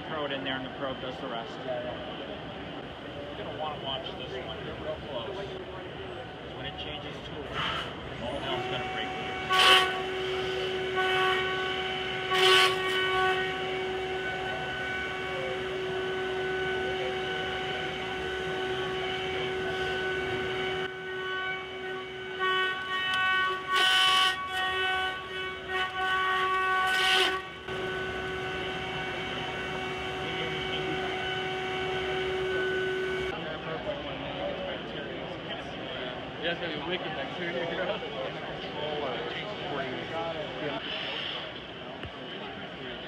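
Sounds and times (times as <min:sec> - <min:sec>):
high spindle whine: 0:03.0 - 0:33.4.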